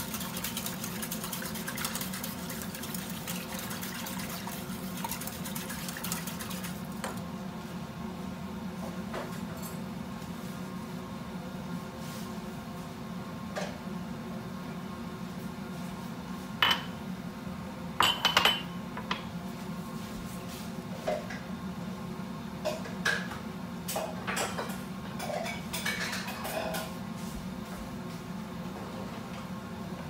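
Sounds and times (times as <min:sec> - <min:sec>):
glass and ceramic clinking: 0:18.0 - 0:18.7.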